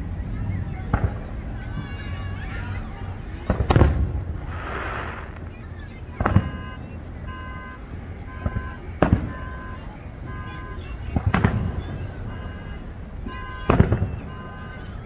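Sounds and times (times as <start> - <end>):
firework shells booming: 3.5 - 6.6
car alarm beeping: 4.6 - 15.0.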